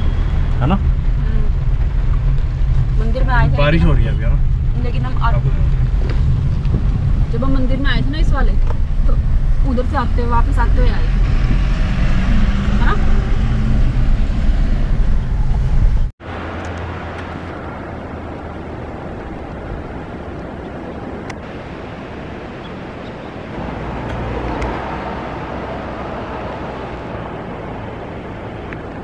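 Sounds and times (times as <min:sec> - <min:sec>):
car engine hum: 0:00.0 - 0:29.0
tyre noise on wet road: 0:00.0 - 0:29.0.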